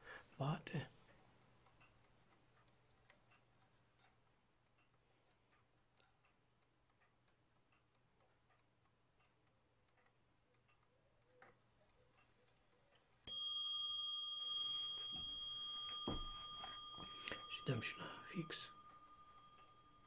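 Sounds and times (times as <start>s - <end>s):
clock ticking faintly: 0.0s - 20.0s
clock hammer striking bell: 13.3s - 20.0s.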